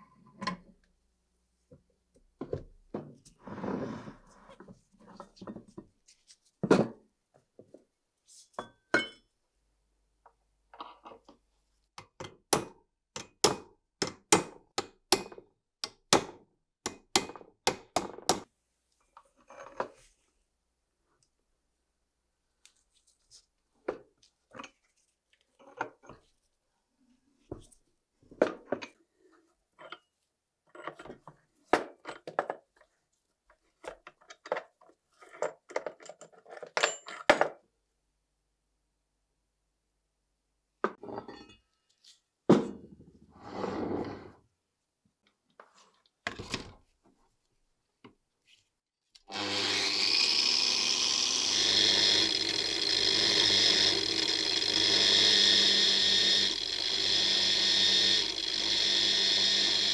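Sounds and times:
angle grinder with wire wheel: 49.3 - 59.9.

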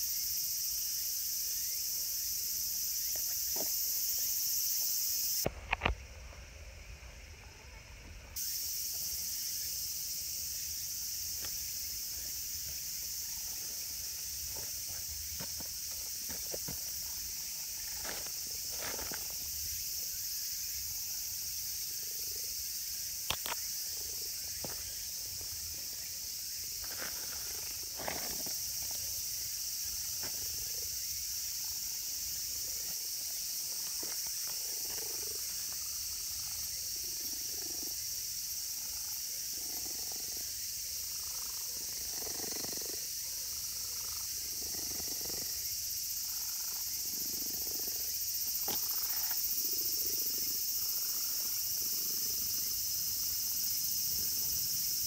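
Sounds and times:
insects droning: 0.0 - 55.0.

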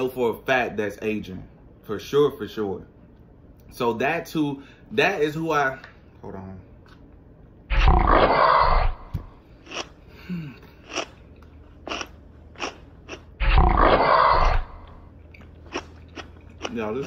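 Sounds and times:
chewing: 9.5 - 17.0.

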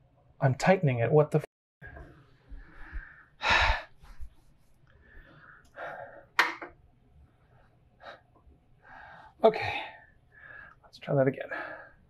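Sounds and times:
soft breathing: 1.8 - 6.4, 7.2 - 12.0.

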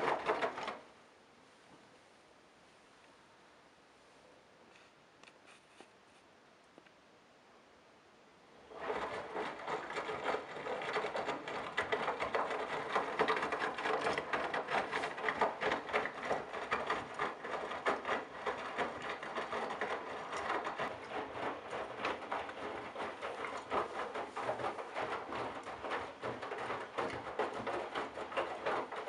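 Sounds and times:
water sloshing in washing machine drum: 8.6 - 29.0.

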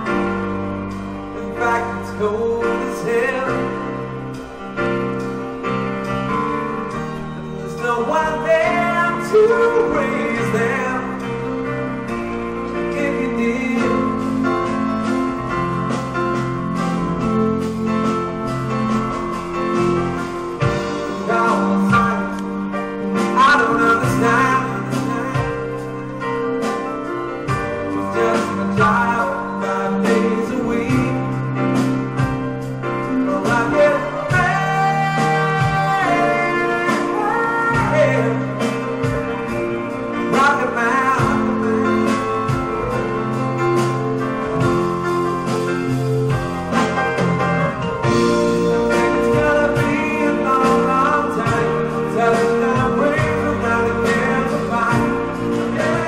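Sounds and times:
drums: 0.0 - 56.0
piano chords: 0.0 - 56.0
person singing: 7.7 - 11.4, 20.7 - 26.1, 27.8 - 31.8, 33.1 - 39.5, 48.0 - 56.0.

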